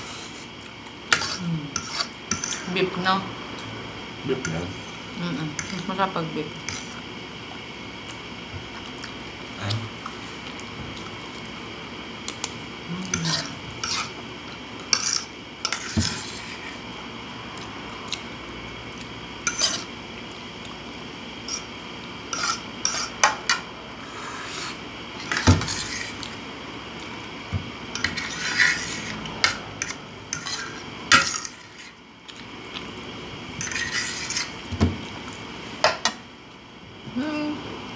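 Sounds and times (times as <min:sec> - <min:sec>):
fork scraping ceramic plate: 0:01.1 - 0:02.7, 0:06.6 - 0:07.0, 0:13.1 - 0:14.2, 0:14.9 - 0:16.8, 0:19.4 - 0:19.9, 0:22.3 - 0:26.3, 0:27.9 - 0:32.0, 0:33.6 - 0:34.6.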